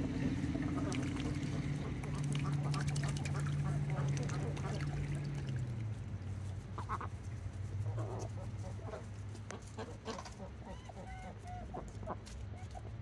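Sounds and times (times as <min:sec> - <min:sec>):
ducks quacking and chattering: 0:00.0 - 0:05.7, 0:06.5 - 0:13.0
steady low hum: 0:00.0 - 0:10.0.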